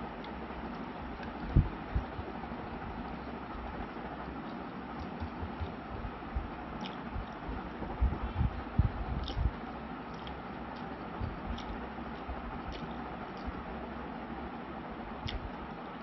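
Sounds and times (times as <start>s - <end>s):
person chewing: 6.8s - 7.5s, 9.2s - 13.6s.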